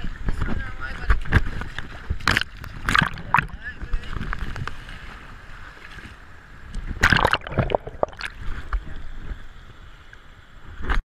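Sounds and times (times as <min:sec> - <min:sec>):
water sloshing: 0:01.2 - 0:09.0.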